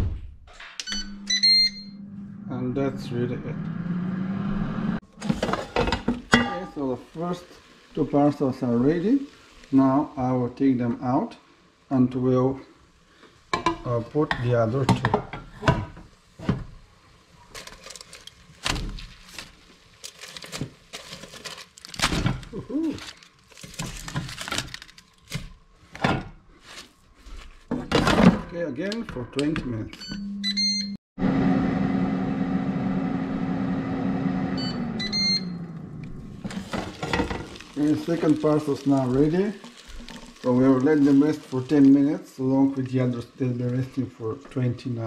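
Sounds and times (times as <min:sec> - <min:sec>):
high beeps: 0:00.8 - 0:02.1, 0:34.6 - 0:35.6
aluminium foil rustling: 0:17.3 - 0:27.7, 0:36.4 - 0:44.0.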